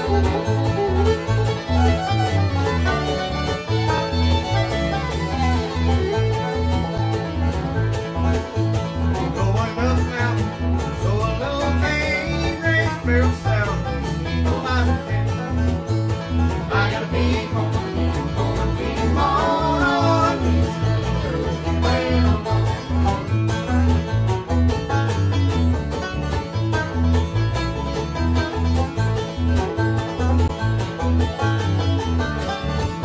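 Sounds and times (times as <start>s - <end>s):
bluegrass band playing: 0.0s - 33.0s
steady pulsing bass: 0.0s - 33.0s.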